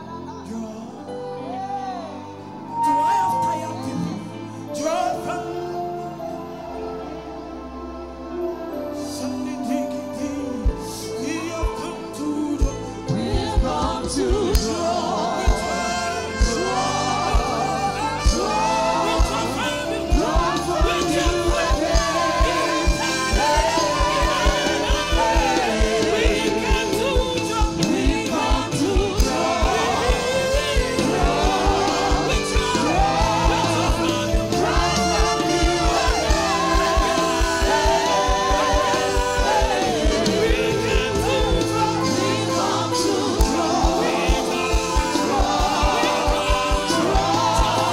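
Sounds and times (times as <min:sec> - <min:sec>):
gospel singing by several vocalists: 0:00.0 - 0:47.9
instrumental backing with steady beat: 0:10.4 - 0:47.9.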